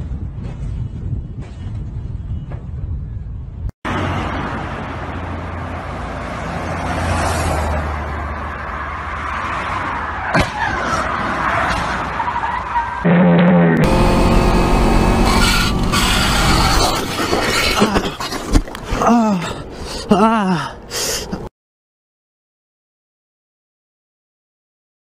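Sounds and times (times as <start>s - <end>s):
highway traffic noise: 0.0s - 18.9s, 20.7s - 21.5s
wavering squeal: 12.3s - 17.6s.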